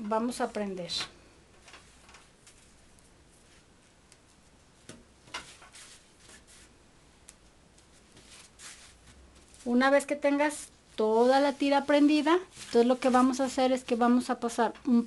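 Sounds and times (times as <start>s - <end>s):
fabric rustling: 1.6s - 14.2s.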